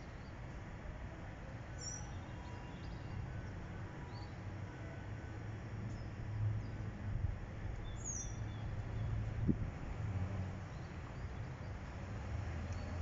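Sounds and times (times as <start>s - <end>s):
bird chirp: 1.8s - 3.2s, 7.8s - 9.2s.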